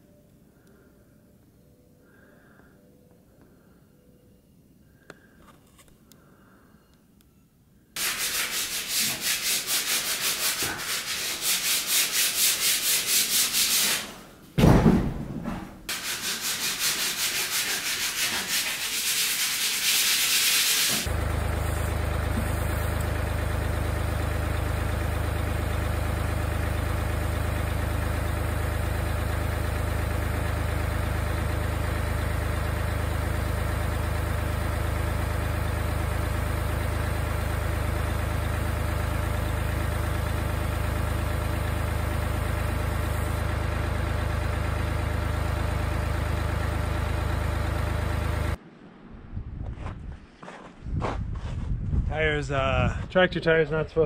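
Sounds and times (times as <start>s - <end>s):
power sander on wood: 8.0s - 14.1s, 15.9s - 23.1s
loud knock: 14.6s - 15.9s
tractor engine running: 20.9s - 49.0s.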